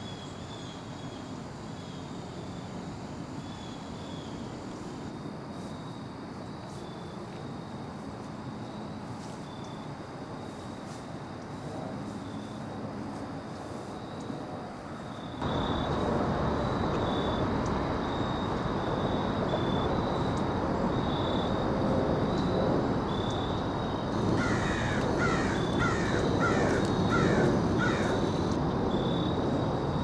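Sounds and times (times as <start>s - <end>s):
woodland background hiss: 0.0s - 30.0s
crow cawing: 24.4s - 28.4s.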